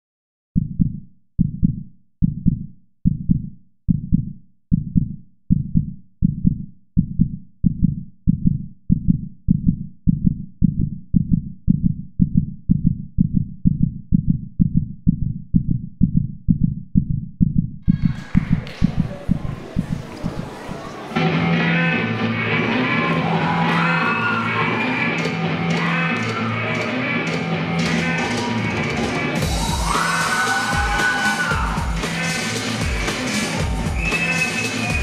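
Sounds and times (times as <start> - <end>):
heartbeat thuds: 0.6 - 20.5.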